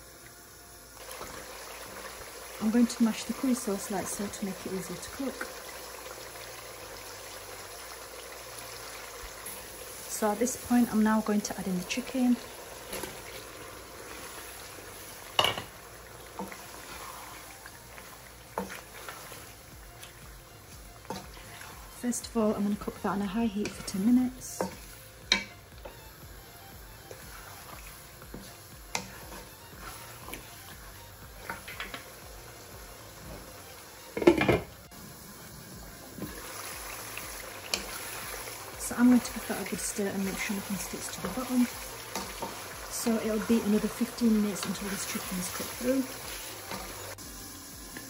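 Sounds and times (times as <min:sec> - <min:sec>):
sauce sizzling and bubbling: 0:00.0 - 0:48.0
wooden spatula scraping a wok: 0:16.3 - 0:19.6, 0:21.0 - 0:22.1, 0:27.1 - 0:30.7.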